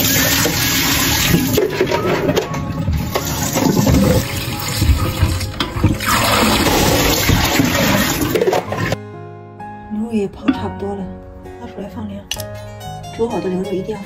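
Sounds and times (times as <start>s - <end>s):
tap water running into bowl: 0.0s - 1.7s, 3.0s - 9.0s
water splashing into steel sink: 0.0s - 2.4s, 3.1s - 9.0s.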